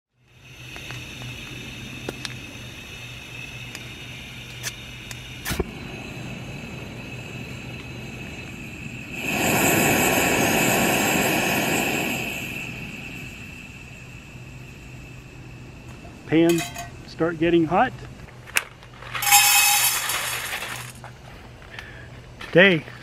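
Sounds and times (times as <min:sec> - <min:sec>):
gas burner hissing: 0:00.2 - 0:22.7
igniter clicks: 0:03.6 - 0:05.7.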